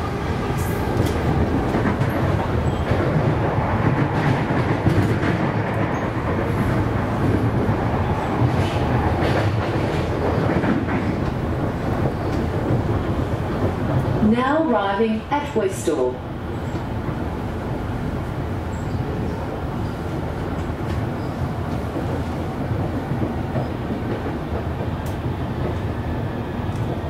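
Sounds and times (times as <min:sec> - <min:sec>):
train wheels rumbling on rails: 0:00.0 - 0:27.0
clacks over rail joints: 0:08.4 - 0:14.2.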